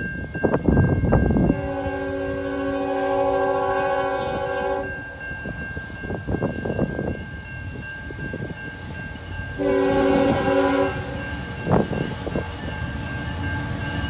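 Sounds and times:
uneven train rumble: 0:00.0 - 0:14.0
locomotive air horn chord: 0:01.5 - 0:05.2, 0:09.6 - 0:11.2.

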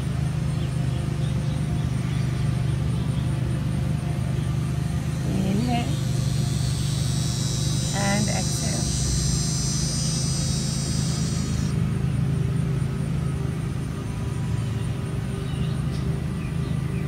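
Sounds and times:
high-pitched whine: 0:00.0 - 0:17.0
low mechanical hum: 0:00.0 - 0:17.0
faint chirps: 0:00.6 - 0:11.8.

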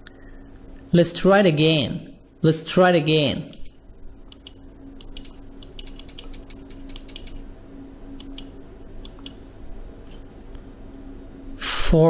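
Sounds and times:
low steady hum: 0:00.0 - 0:12.0
computer keyboard typing: 0:03.5 - 0:07.4, 0:08.2 - 0:09.4.

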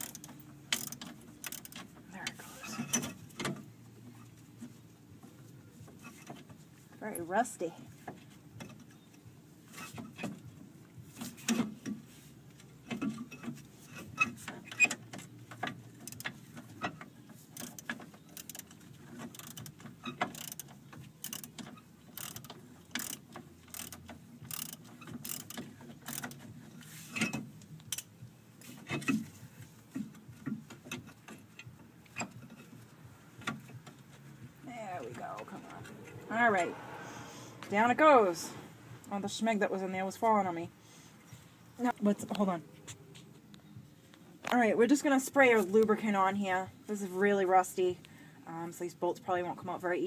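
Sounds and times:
socket ratchet clicking: 0:00.0 - 0:01.8, 0:19.3 - 0:26.4
sharp metal clicks: 0:00.0 - 0:01.9, 0:14.7 - 0:26.5.

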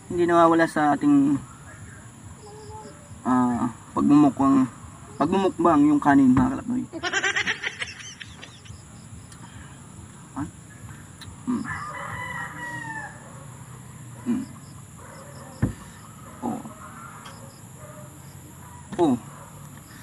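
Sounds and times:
rooster crowing: 0:11.5 - 0:13.5.

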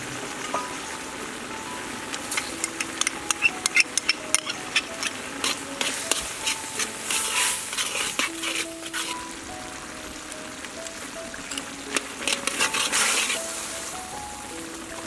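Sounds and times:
broth bubbling: 0:00.0 - 0:15.0
spoon clinking against wok: 0:02.1 - 0:09.1, 0:11.5 - 0:13.4.

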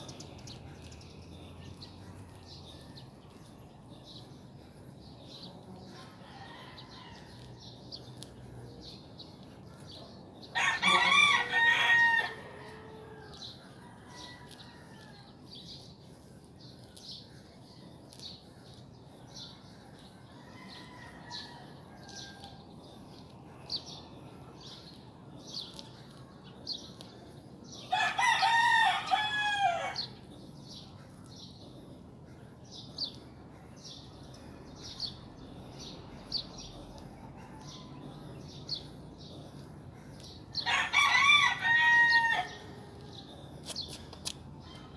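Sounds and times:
rooster crowing: 0:10.6 - 0:13.2, 0:27.9 - 0:30.0, 0:40.7 - 0:42.6.

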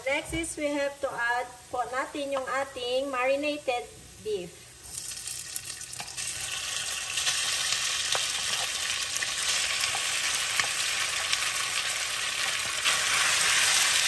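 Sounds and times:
meat sizzling in a frying pan: 0:04.8 - 0:14.0.

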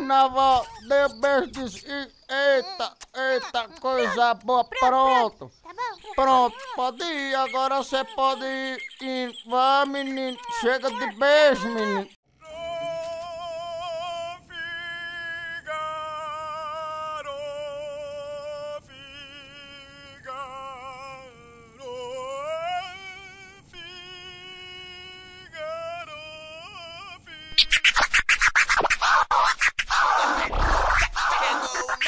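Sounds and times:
vinyl record of singing voice: 0:12.4 - 0:28.9, 0:30.0 - 0:32.0.

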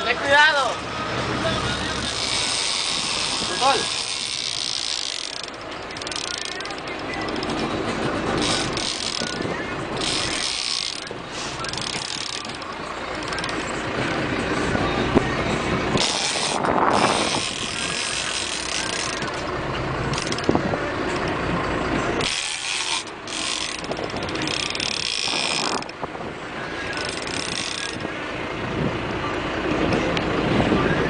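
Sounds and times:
boat engine rumble: 0:00.0 - 0:31.0
fishing reel ratcheting: 0:02.0 - 0:07.6, 0:08.4 - 0:09.4, 0:10.0 - 0:13.6, 0:16.0 - 0:19.4, 0:20.1 - 0:20.5, 0:22.2 - 0:26.0, 0:26.9 - 0:28.0.

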